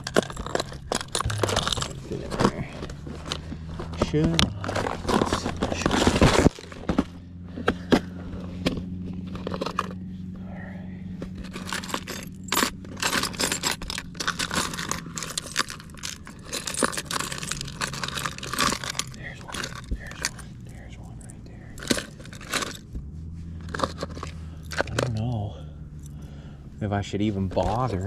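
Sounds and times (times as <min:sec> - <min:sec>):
lures and hooks clattering: 0:00.0 - 0:06.8, 0:11.3 - 0:22.8, 0:23.6 - 0:26.3
plastic boxes scraping: 0:00.0 - 0:08.6.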